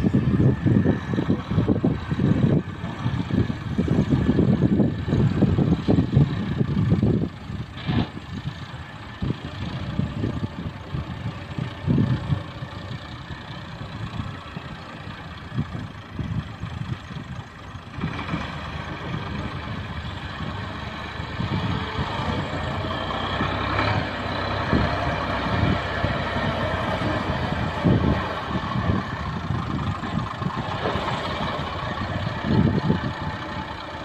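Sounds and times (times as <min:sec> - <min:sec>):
diesel engines rumbling: 0:00.0 - 0:34.0.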